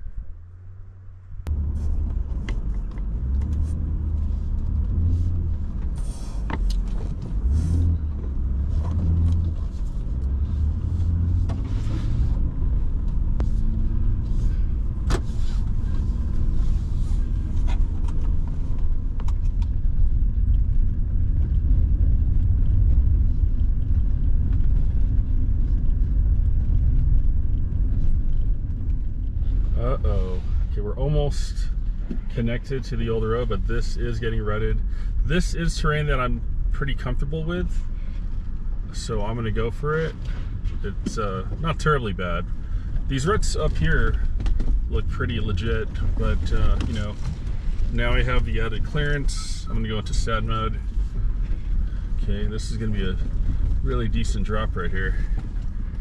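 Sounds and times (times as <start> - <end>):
vehicle engine and tyres rumbling: 0.0 - 56.0
clicks and knocks on rough ground: 43.9 - 44.9.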